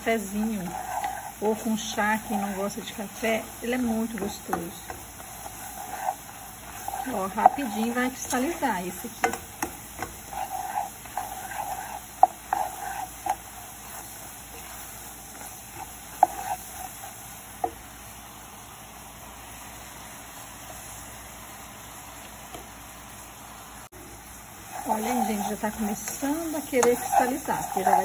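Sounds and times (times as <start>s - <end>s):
spatula scraping pan: 0.0s - 17.8s, 24.6s - 28.0s
syrup bubbling in a pan: 0.0s - 23.2s, 23.9s - 28.0s.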